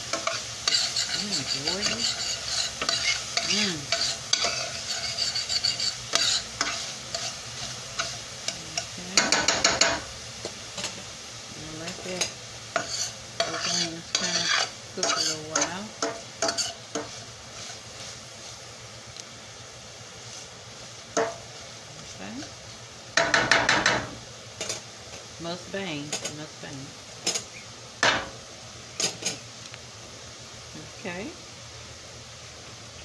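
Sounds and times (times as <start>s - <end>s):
metal spoon scraping skillet: 0.0s - 11.0s, 11.8s - 18.2s, 21.2s - 21.5s, 27.2s - 29.4s
onions sizzling: 0.0s - 33.0s.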